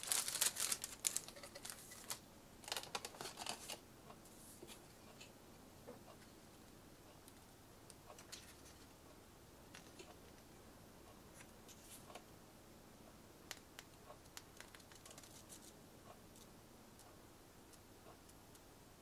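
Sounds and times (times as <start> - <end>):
paper pages turning: 0.0 - 3.8.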